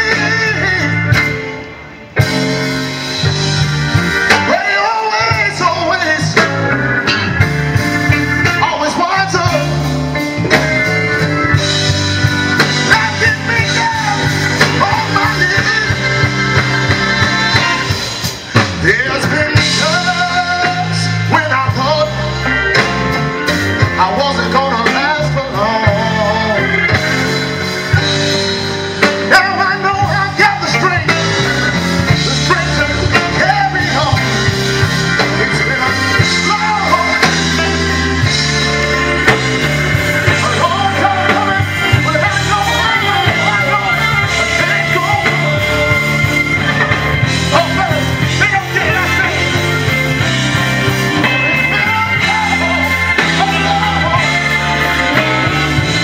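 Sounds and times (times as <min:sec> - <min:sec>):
bass line: 0:00.0 - 0:56.0
blues band playing: 0:00.0 - 0:56.0
guitar: 0:00.0 - 0:56.0
person singing: 0:04.3 - 0:06.7, 0:12.6 - 0:18.0, 0:18.6 - 0:23.0, 0:23.8 - 0:28.0, 0:29.1 - 0:56.0.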